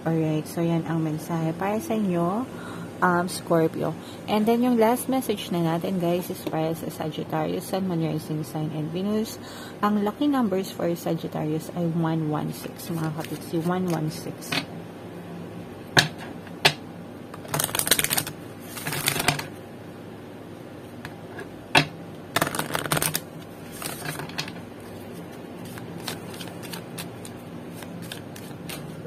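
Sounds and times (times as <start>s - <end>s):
cards being shuffled: 12.9s - 14.1s, 17.4s - 19.6s, 22.4s - 29.0s.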